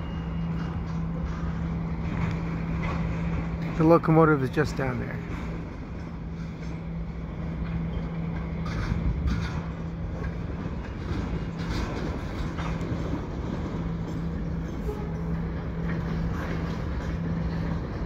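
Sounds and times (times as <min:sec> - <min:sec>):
wheels clacking over rail joints: 0:00.0 - 0:18.0
low hum and rumble: 0:05.0 - 0:18.0.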